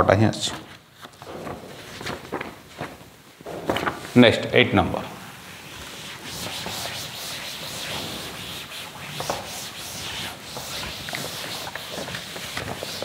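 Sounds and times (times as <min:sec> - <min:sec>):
duster wiping chalkboard: 0:05.1 - 0:13.0.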